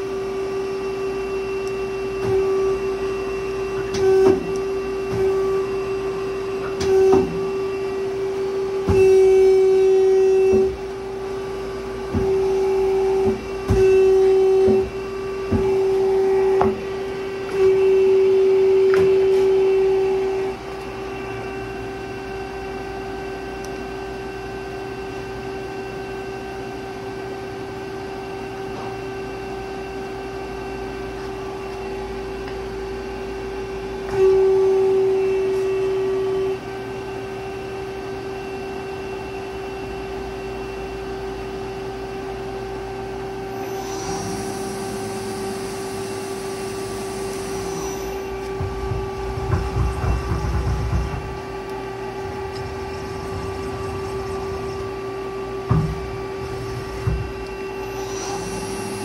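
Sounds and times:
machine humming and whining: 0.0 - 59.0
low thumps: 48.4 - 57.4.

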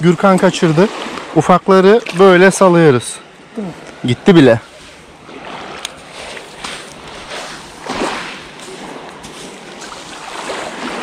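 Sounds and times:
fishing rod swish: 4.7 - 11.0
small waves on pebbles: 4.7 - 11.0.

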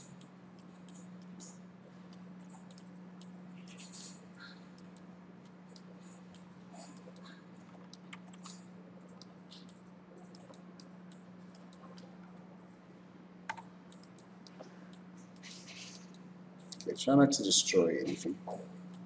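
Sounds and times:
low electrical hum: 0.0 - 19.0
mouse and keyboard clicks: 5.7 - 12.1.

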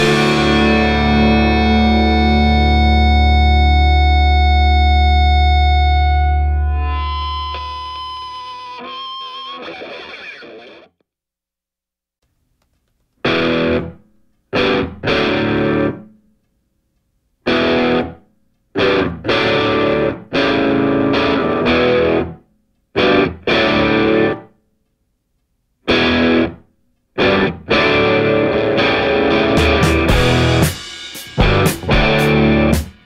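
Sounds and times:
distorted electric guitar riff: 0.0 - 11.0, 13.2 - 16.1, 17.5 - 18.2, 18.8 - 22.4, 23.0 - 24.5, 25.9 - 26.6, 27.2 - 33.0.

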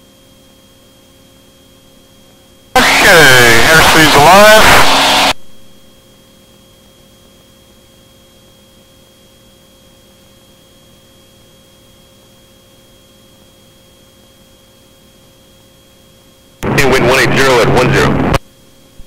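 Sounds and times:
electrical hum and hiss: 0.0 - 19.0
high-pitched whine: 2.8 - 5.8, 16.6 - 18.4.

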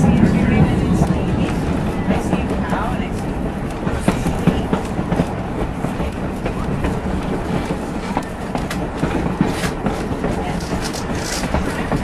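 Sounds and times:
train wheels rumbling on rails: 0.0 - 12.0
clicks and rattles: 9.5 - 12.0.

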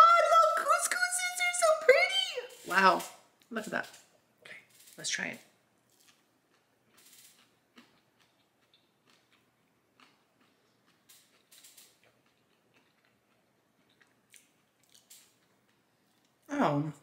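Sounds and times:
faint chewing crunches: 3.4 - 16.5.

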